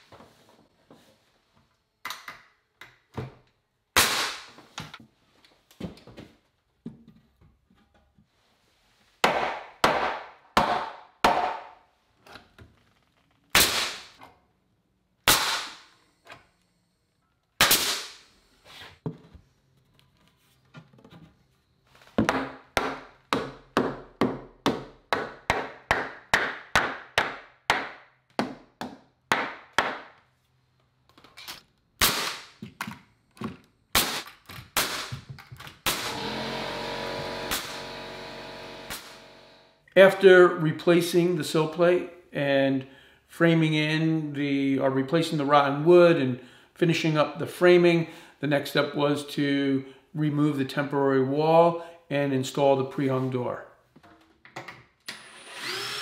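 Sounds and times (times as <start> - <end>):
nail gun shots: 4.0 - 4.5, 13.6 - 14.2, 15.2 - 15.9, 17.6 - 18.2, 32.0 - 32.6, 33.9 - 36.4, 37.4 - 37.8, 38.9 - 39.2.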